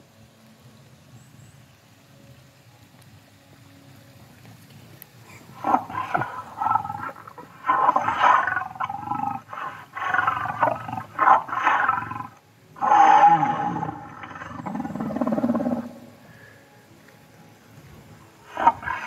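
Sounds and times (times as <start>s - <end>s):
long loud roars: 5.6s - 16.2s.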